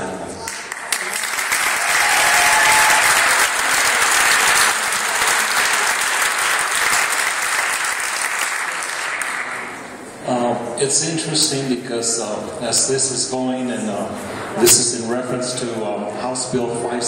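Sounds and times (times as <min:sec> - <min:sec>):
audience applauding: 0:00.5 - 0:09.8.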